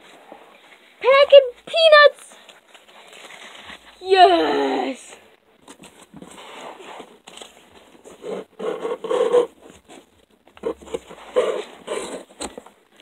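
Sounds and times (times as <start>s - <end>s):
cardboard box scraping: 5.8s - 12.6s.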